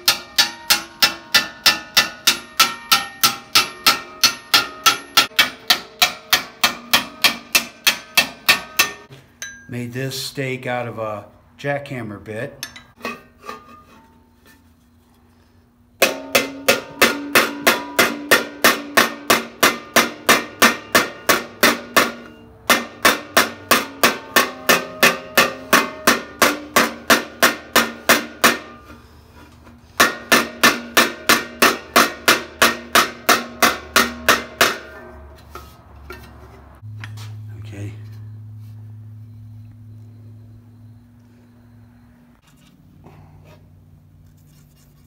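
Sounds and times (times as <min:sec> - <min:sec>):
hammer striking steel plate: 0:00.0 - 0:09.7, 0:16.0 - 0:29.0, 0:29.9 - 0:36.4.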